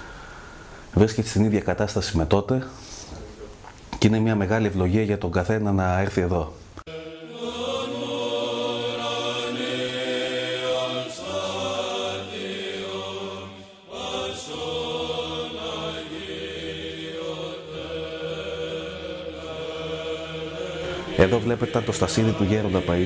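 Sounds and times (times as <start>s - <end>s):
voices chanting long notes: 6.9s - 23.0s
low steady drone: 17.1s - 23.0s.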